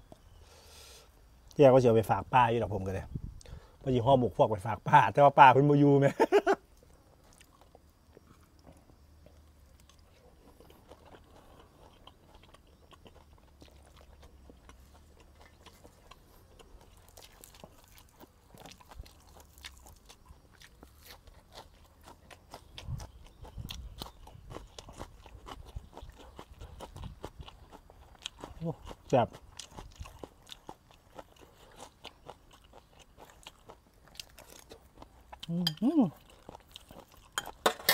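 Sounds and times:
chewing and crunching food: 0:01.1 - 0:37.9.

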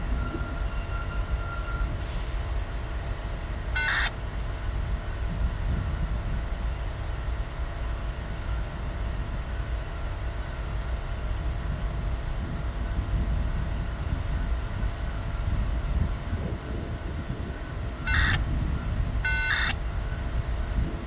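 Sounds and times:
rail yard rumble: 0:00.0 - 0:21.0.

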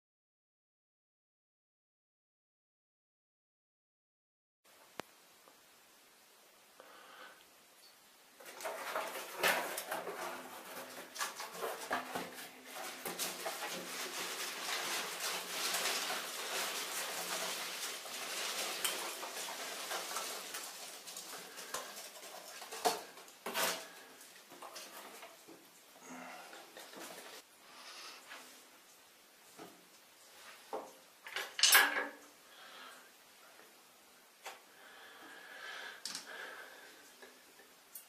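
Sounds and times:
hands rummaging through packing peanuts: 0:08.4 - 0:24.0.

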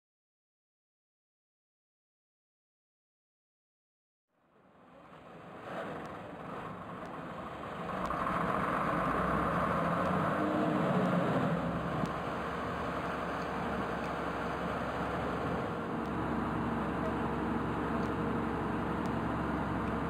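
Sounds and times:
diesel engine running: 0:04.7 - 0:20.0.

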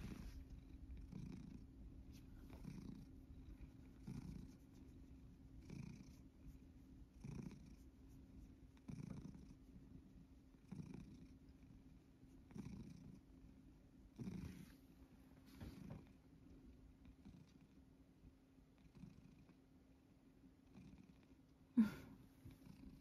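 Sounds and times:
cat purring: 0:00.0 - 0:19.7, 0:20.6 - 0:23.0.

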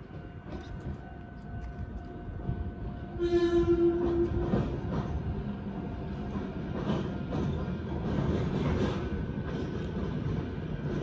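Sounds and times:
train horn blast: 0:03.1 - 0:04.8
train wheels clattering on rails: 0:03.6 - 0:11.0.

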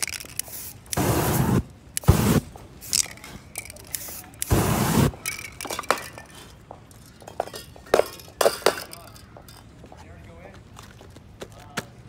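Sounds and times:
spray can hissing: 0:00.0 - 0:05.3
metal cans clinking: 0:05.2 - 0:06.5.

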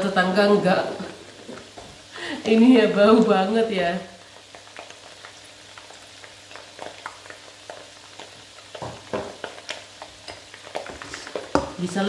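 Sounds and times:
food sizzling: 0:00.0 - 0:12.0
spatula tapping in frying pan: 0:06.8 - 0:11.9.

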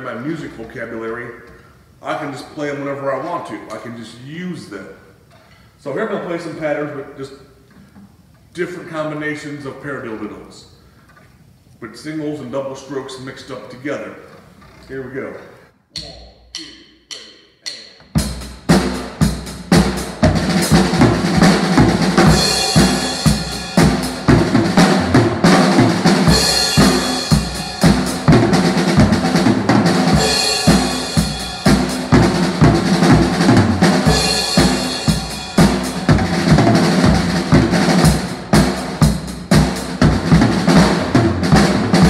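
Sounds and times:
drumstick count-in clicks: 0:15.9 - 0:18.2
drum kit playing: 0:16.0 - 0:42.0
cymbal crashes: 0:18.4 - 0:38.2.

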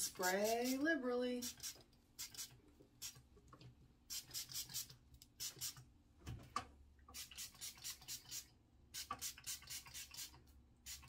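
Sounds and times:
spray bottle hissing: 0:04.1 - 0:05.8.

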